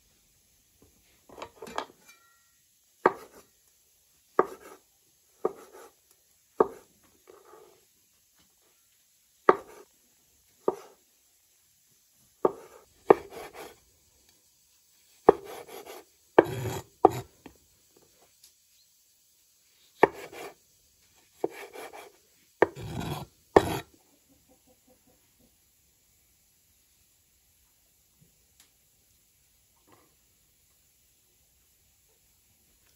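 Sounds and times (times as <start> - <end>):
blade scraping board: 15.3 - 17.3, 21.4 - 23.8
cleaver knocking on cutting board: 16.4 - 17.2, 22.6 - 23.8.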